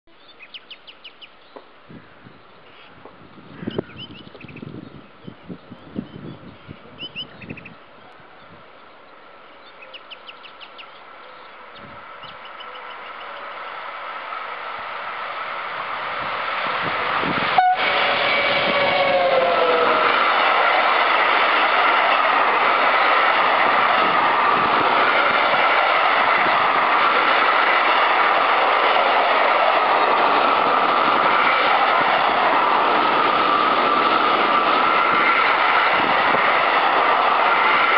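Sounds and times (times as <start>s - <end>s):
train rolling on rails: 0.1s - 37.9s
locomotive horn: 17.4s - 20.2s.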